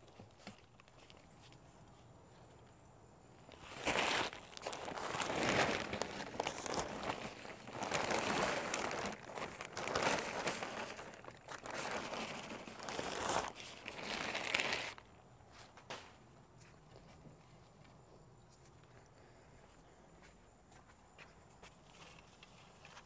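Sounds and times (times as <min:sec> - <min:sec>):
plastic bag crinkling: 0:03.4 - 0:15.1.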